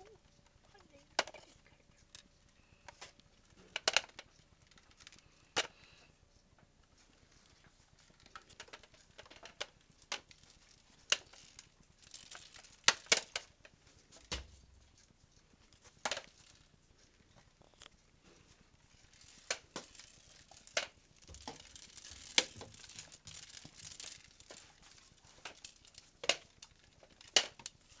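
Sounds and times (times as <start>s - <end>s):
soft rattling: 0.0s - 28.0s
plastic balls clacking: 0.8s - 2.2s, 2.9s - 5.8s, 8.0s - 14.5s, 15.8s - 16.7s, 18.8s - 28.0s.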